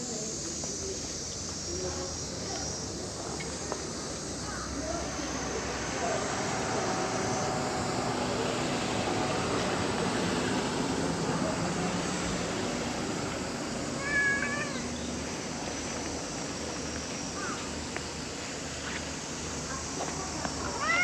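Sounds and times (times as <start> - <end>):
outdoor background noise: 0.0 - 21.0
cat meowing: 14.0 - 14.9.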